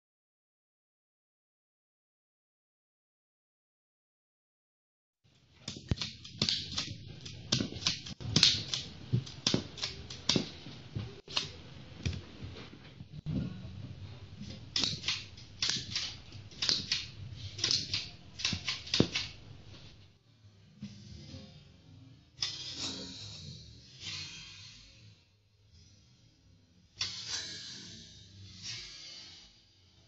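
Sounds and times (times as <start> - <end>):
toy revolver plastic clicks: 14.7 - 19.4.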